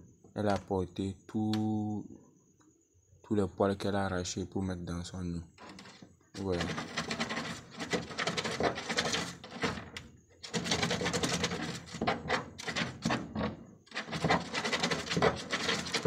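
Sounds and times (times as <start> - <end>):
rabbit scratching in plastic box: 5.6 - 16.0.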